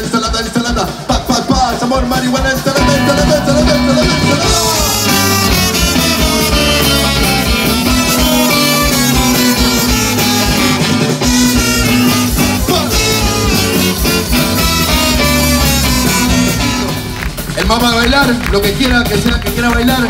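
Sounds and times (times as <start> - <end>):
live band playing upbeat music: 0.0 - 20.0
accordion: 2.1 - 19.8.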